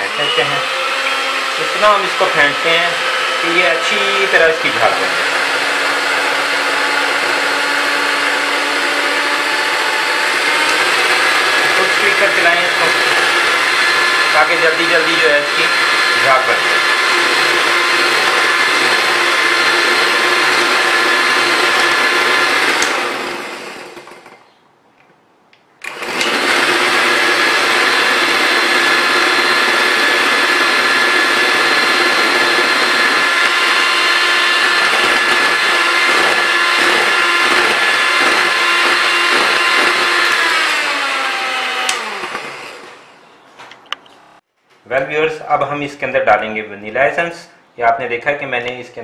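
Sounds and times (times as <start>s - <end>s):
electric hand mixer whirring: 0.0s - 24.4s, 25.8s - 43.2s.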